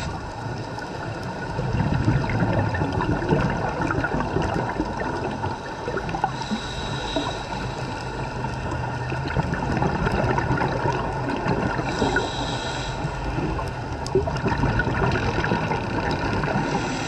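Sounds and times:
underwater bubbling and gurgling: 0.0 - 17.0.

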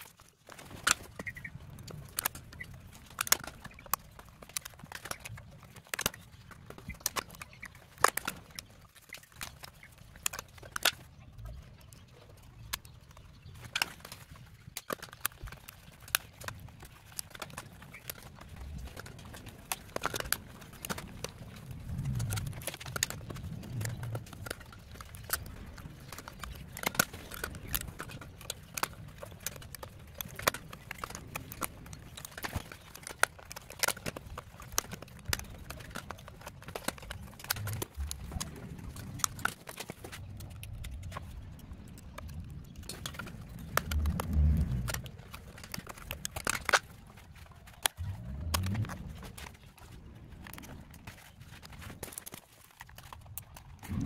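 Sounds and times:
low rumble of handling: 15.3 - 54.0.

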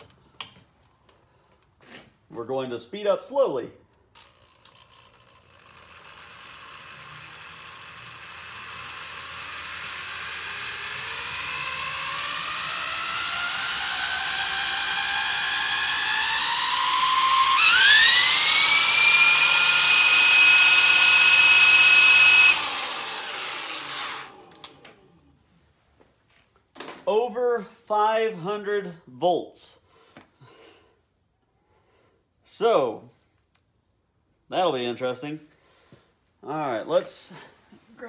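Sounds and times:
motor rotor whine: 4.2 - 25.0.

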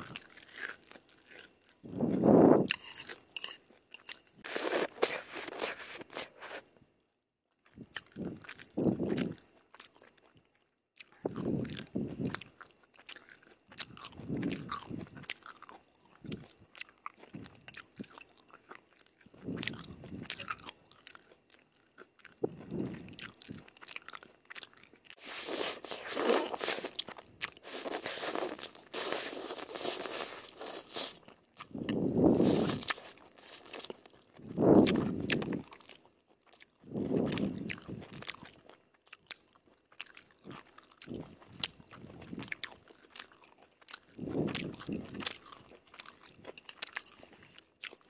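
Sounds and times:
wet chewing: 0.0 - 6.8, 7.6 - 10.4, 11.0 - 48.0
slurping noodles: 4.4 - 6.7, 25.2 - 31.2, 31.9 - 35.5
mouth smacking: 34.4 - 35.6.

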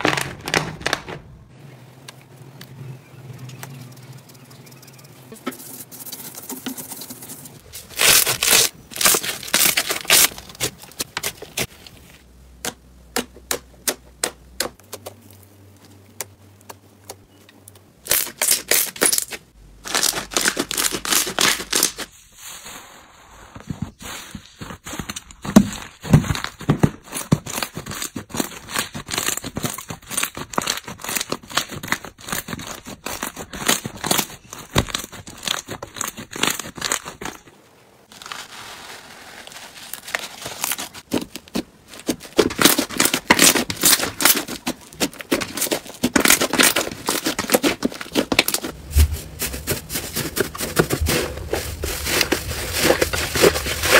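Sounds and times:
slime crackling and popping: 0.0 - 1.3.

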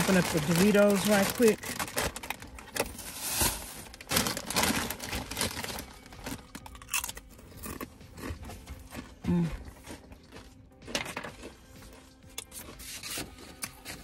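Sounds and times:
chip bag crinkling: 0.0 - 7.9
crunching chips being eaten: 0.0 - 14.0.

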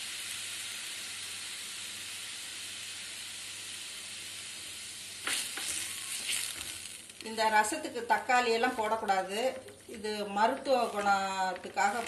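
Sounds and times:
soup frothing with a hiss: 0.0 - 7.2.

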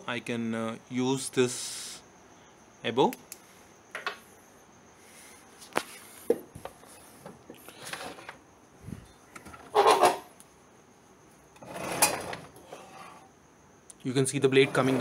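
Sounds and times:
wood scraping: 14.6 - 15.0.

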